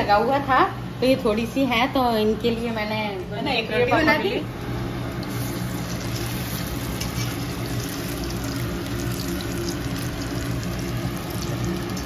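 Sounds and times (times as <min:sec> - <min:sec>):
steady low hum: 0:00.0 - 0:12.0
fritters sizzling in hot oil: 0:05.1 - 0:12.0.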